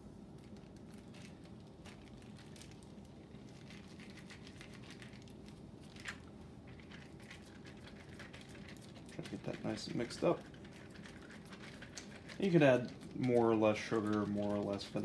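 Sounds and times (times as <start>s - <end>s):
plastic bag crinkling: 0.3s - 15.0s.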